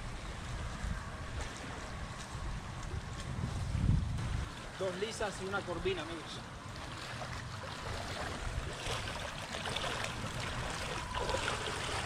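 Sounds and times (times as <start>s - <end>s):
water splashing from wading: 0.0s - 12.0s
wet net dragging and dripping: 6.6s - 12.0s.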